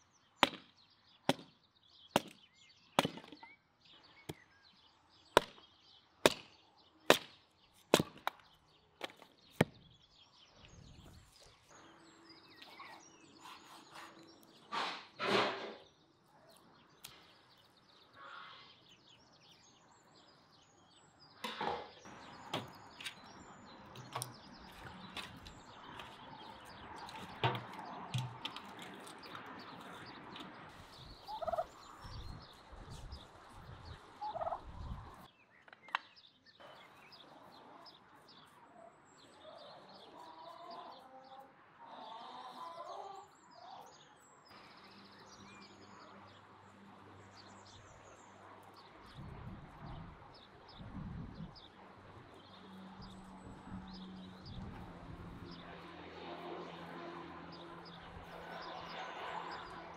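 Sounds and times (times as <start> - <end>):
turkeys gobbling: 31.2 - 31.7, 34.2 - 34.7.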